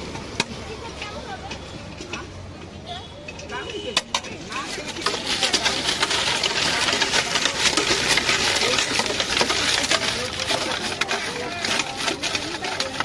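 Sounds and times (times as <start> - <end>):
metal spoon scraping a steel pot: 3.2 - 13.0
fried snacks crunching: 4.6 - 13.0.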